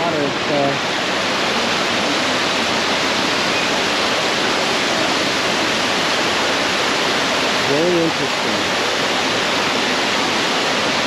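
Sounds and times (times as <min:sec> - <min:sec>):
waterfall rushing into pond: 0:00.0 - 0:11.0.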